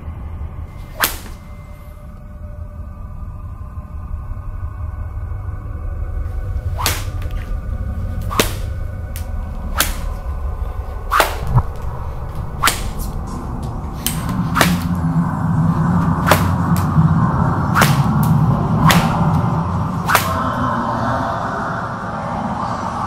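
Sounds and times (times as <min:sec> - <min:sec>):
droning horror score: 0:00.0 - 0:23.0
whip-like cracks: 0:00.8 - 0:01.5, 0:06.8 - 0:07.5, 0:08.2 - 0:10.3, 0:11.1 - 0:15.1, 0:16.0 - 0:17.0, 0:17.6 - 0:20.7.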